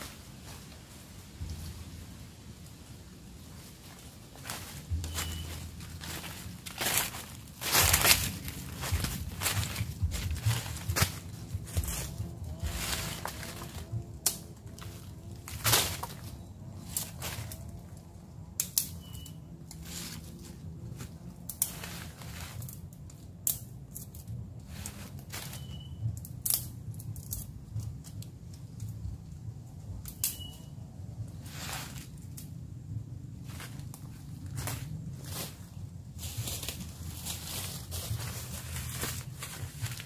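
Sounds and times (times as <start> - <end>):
footsteps crunching dry leaves: 3.4 - 18.0, 19.8 - 22.9, 24.6 - 25.9, 31.3 - 32.3, 33.3 - 40.0
dry sticks snapping: 4.4 - 17.8, 18.5 - 19.9, 21.4 - 29.0, 30.0 - 30.7, 32.0 - 32.6.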